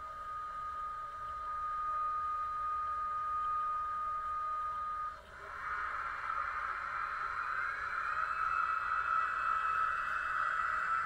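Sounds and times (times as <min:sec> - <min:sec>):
model locomotive whine: 0:00.0 - 0:11.0
rising hiss: 0:05.3 - 0:11.0.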